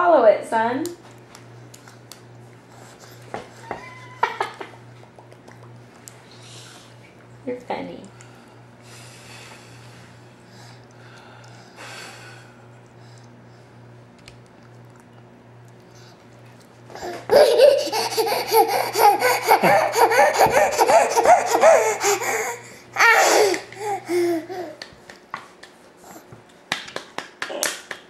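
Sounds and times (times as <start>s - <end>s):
toddler laughing: 16.9s - 24.8s
hand claps: 24.8s - 25.8s, 26.7s - 28.0s.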